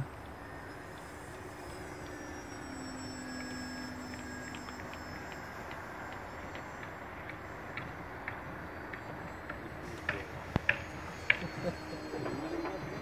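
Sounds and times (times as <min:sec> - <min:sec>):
model airplane motor droning: 0:00.0 - 0:13.0
open-air wind rush: 0:00.0 - 0:13.0.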